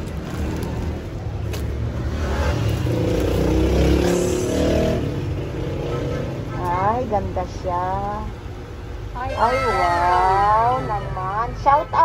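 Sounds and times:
vehicle engine passing: 0.3s - 7.4s.

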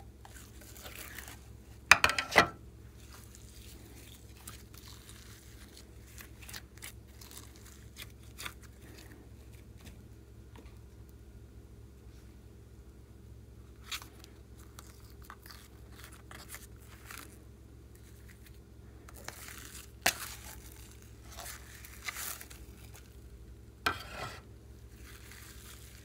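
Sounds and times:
wet slime crackle: 0.2s - 1.9s, 2.9s - 9.6s, 13.8s - 23.4s, 24.8s - 26.0s
plastic bag rustling: 18.0s - 23.3s, 24.9s - 26.0s.

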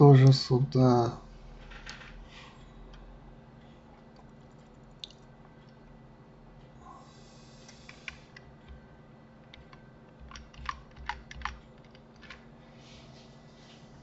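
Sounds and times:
low steady hum: 0.0s - 14.0s
computer keyboard and mouse clicks: 7.7s - 8.8s, 9.5s - 12.4s.

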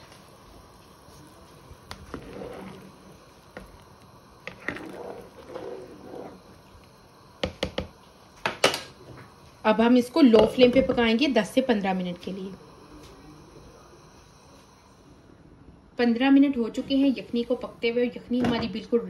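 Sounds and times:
ladle stirring: 0.0s - 9.0s
stock bubbling in a pan: 0.0s - 15.4s.

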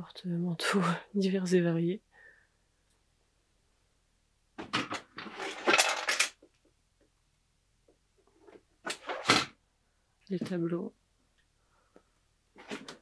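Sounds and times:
small hard objects clattering: 5.0s - 6.5s.

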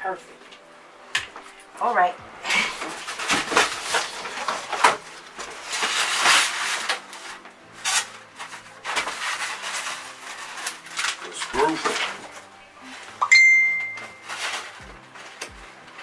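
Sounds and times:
cardboard scraping and rustling: 2.4s - 13.2s, 14.2s - 16.0s.

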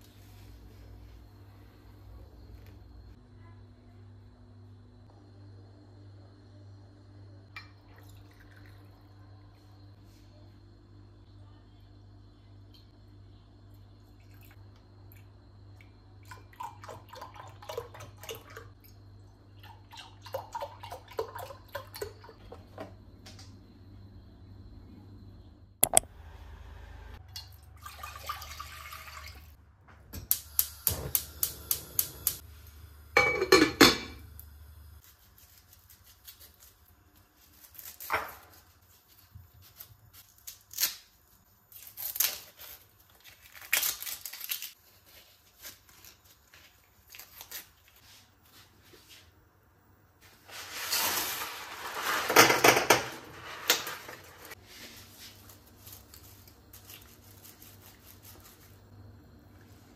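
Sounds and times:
pots and utensils knocking: 33.2s - 34.2s
knife and onion peeling noises: 35.0s - 48.2s, 54.5s - 58.8s.

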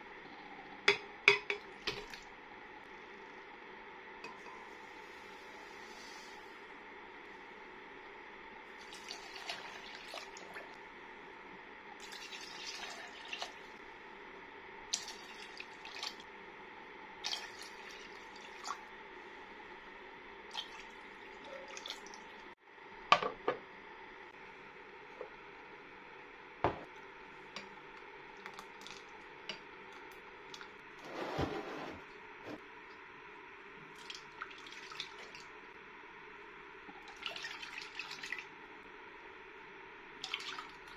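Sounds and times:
water pouring into blender jug: 8.8s - 10.6s.

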